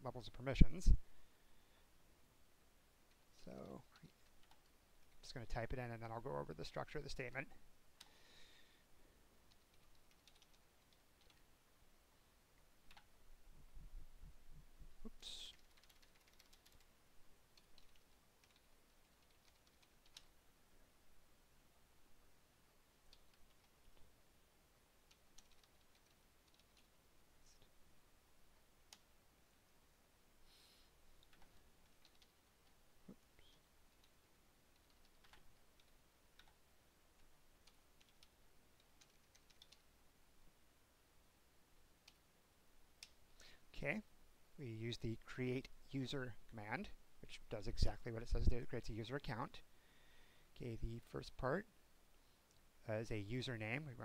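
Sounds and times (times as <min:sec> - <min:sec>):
faint keyboard typing: 0:03.0 - 0:05.4, 0:09.4 - 0:11.5, 0:12.6 - 0:13.8, 0:15.0 - 0:20.4, 0:23.0 - 0:24.2, 0:25.0 - 0:27.7, 0:28.8 - 0:29.2, 0:31.1 - 0:40.0, 0:42.0 - 0:43.7
short breathy hiss: 0:30.4 - 0:31.0.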